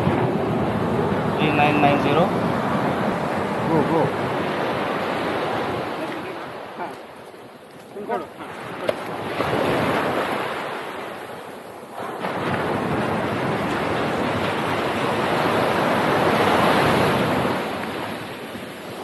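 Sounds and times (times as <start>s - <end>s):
surf breaking on sand: 0.0s - 19.0s.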